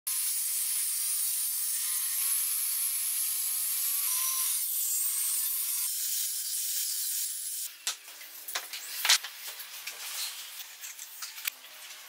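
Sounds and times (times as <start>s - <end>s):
table saw cutting wood: 0.1s - 7.7s.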